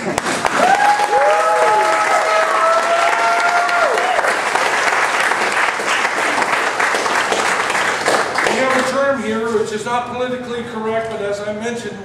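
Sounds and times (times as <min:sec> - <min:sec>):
audience applauding: 0:00.0 - 0:09.0
crowd whooping: 0:00.4 - 0:04.6.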